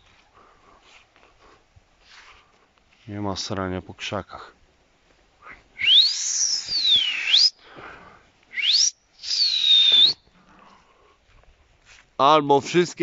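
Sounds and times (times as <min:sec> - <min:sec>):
man whistling loudly: 0:05.8 - 0:07.6, 0:08.5 - 0:10.2.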